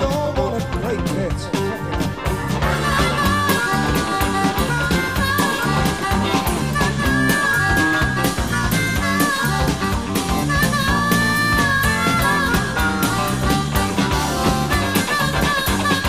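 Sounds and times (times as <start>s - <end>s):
background music with drum beat: 0.0s - 16.0s.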